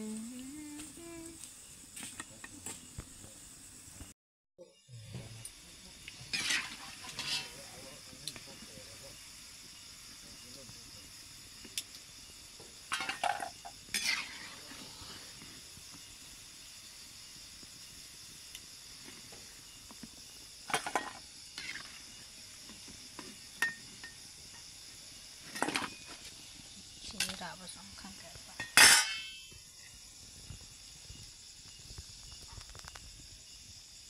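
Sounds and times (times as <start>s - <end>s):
oil sizzling: 5.4s - 28.1s
metal skimmer clinking and scraping: 28.6s - 29.4s.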